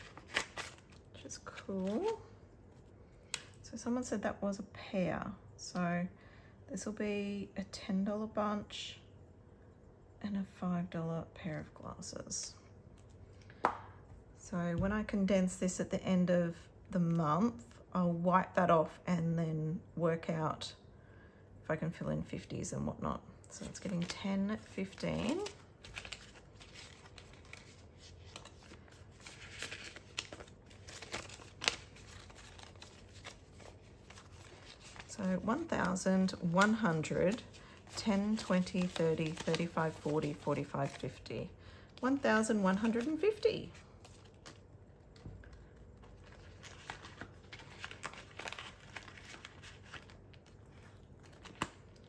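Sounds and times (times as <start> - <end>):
plastic rustling: 0.0 - 3.0, 23.6 - 41.3, 41.9 - 52.0
banknotes crinkling: 0.0 - 3.6, 23.6 - 52.0.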